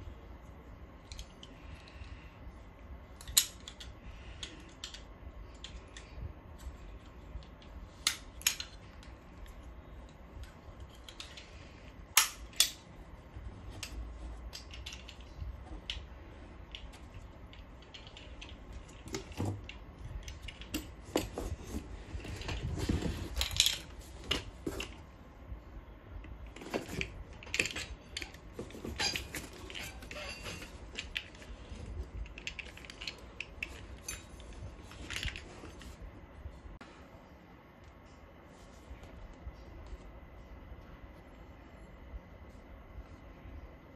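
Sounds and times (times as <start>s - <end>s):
metal stand clinking and scraping: 26.9s - 31.8s, 32.4s - 35.9s.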